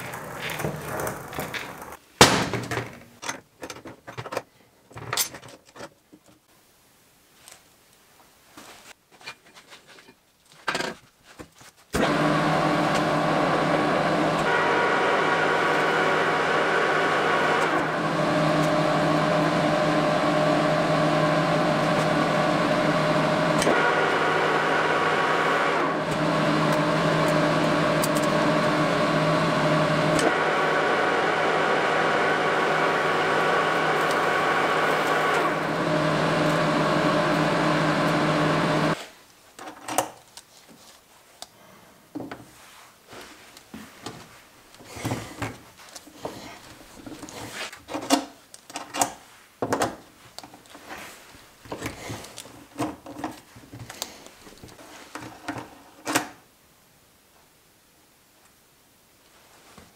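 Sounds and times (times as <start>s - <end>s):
metal lathe running: 12.0s - 39.0s.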